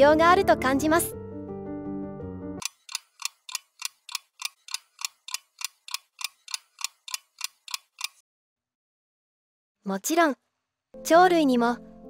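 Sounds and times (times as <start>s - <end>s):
background music: 0.0s - 2.7s, 11.0s - 12.0s
steady ticking: 2.6s - 8.2s.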